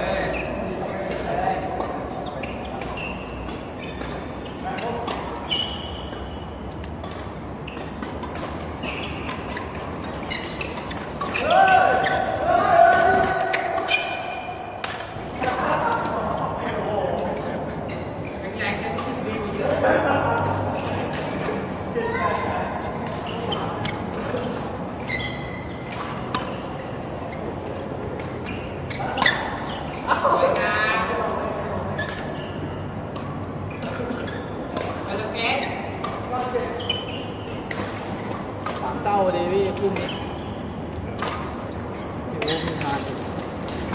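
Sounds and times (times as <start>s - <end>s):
shoes squeaking on court floor: 0.0s - 43.9s
racket hitting shuttlecock: 1.0s - 18.2s, 34.6s - 39.0s, 41.1s - 43.9s.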